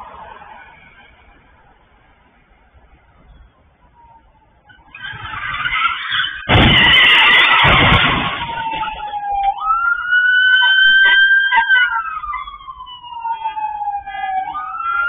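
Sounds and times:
police siren wailing: 3.9s - 15.0s.

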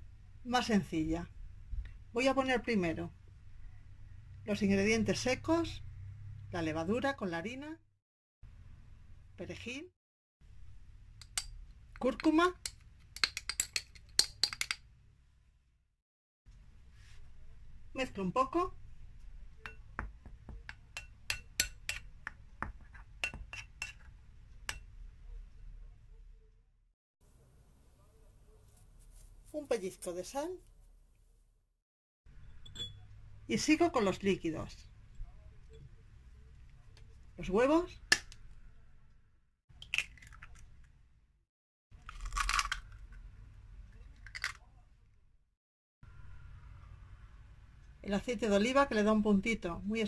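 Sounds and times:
eggshell cracking: 12.6s - 14.8s, 39.8s - 40.7s, 42.0s - 43.2s, 44.2s - 44.6s.

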